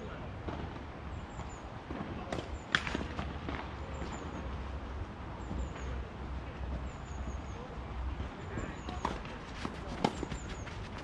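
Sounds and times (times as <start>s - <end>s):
tennis racket striking ball: 9.0s - 10.7s.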